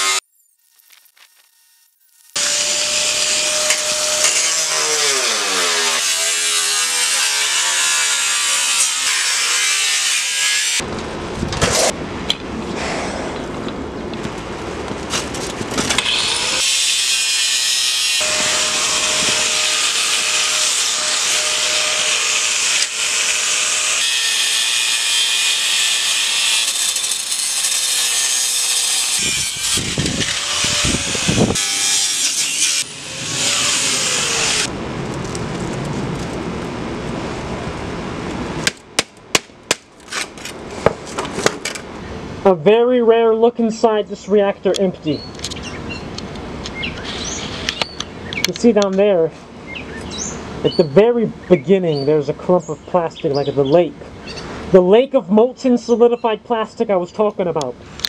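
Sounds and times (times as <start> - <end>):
angle grinder grinding steel: 0.0 - 10.8, 16.0 - 34.7.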